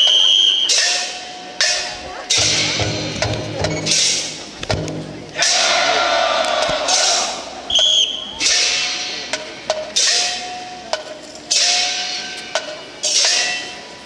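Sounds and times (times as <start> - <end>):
short high whistle: 0.0 - 0.8, 7.7 - 8.4
sharp percussion clacks: 0.0 - 5.7, 8.4 - 14.0.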